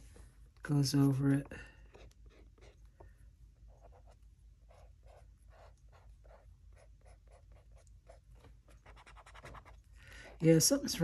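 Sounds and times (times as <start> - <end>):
brush pen scratching on paper: 1.8 - 3.0, 3.7 - 10.4.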